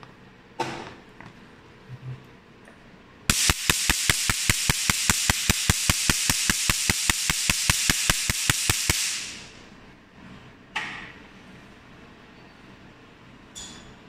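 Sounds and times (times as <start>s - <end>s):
laser pulses snapping: 3.3s - 9.5s
steady high hiss: 3.3s - 9.7s.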